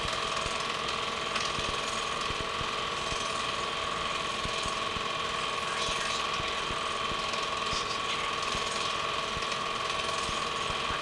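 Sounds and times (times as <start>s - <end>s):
film projector whirring: 0.0s - 11.0s.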